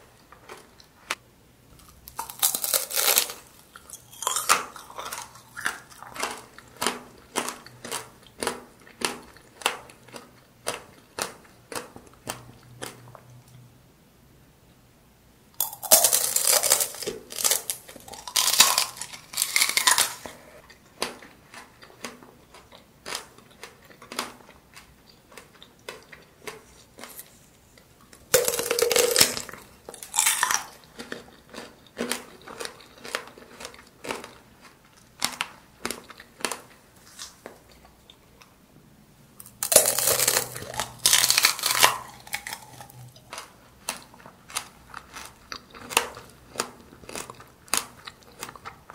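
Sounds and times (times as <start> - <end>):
chewing crunches: 1.8 - 13.6, 15.6 - 38.5, 39.4 - 48.9
crackling bites of candied apple: 39.6 - 48.6.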